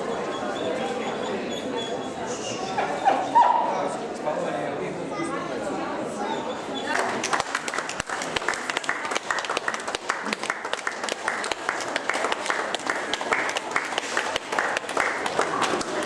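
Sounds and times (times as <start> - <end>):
people talking: 0.0 - 9.3
audience clapping: 6.9 - 16.0.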